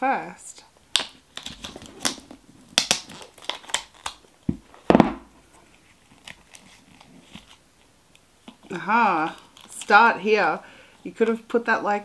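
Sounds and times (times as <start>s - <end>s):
paper and tape crinkling: 1.0s - 10.3s
plastic knock: 4.5s - 5.3s.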